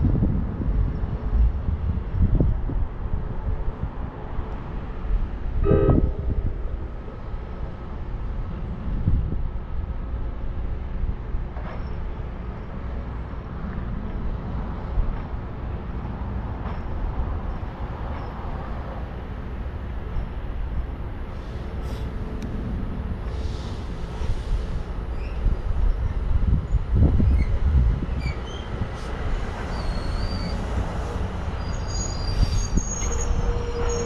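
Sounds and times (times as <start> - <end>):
wind on microphone: 0.0 - 11.3, 23.7 - 29.8, 30.6 - 34.0.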